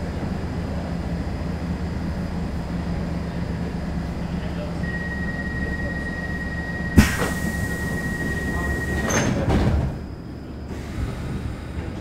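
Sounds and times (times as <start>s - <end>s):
train humming at platform: 0.0s - 12.0s
door-closing warning tone: 4.8s - 9.8s
sharp clunk: 7.0s - 7.6s
sliding doors closing: 7.0s - 10.1s.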